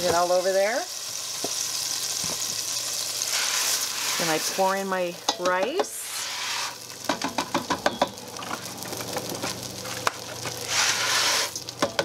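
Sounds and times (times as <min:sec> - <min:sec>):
rushing hiss of pouring grains: 0:03.2 - 0:04.9, 0:05.9 - 0:06.9, 0:10.6 - 0:11.6
rice grains rattling against a pot: 0:05.9 - 0:12.0.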